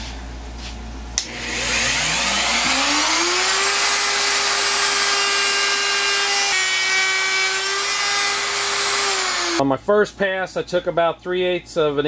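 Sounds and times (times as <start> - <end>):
router motor whine: 1.2 - 9.6.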